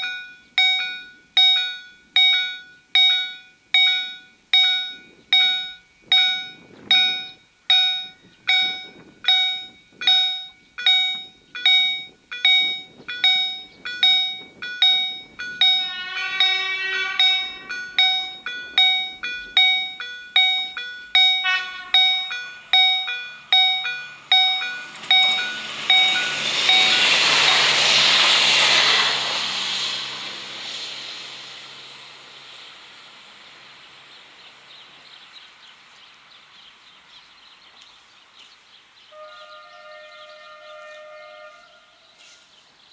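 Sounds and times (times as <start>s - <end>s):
level crossing bells ringing: 0.0s - 27.7s
train passing: 0.0s - 36.5s, 39.1s - 42.6s
low drone: 12.7s - 34.2s.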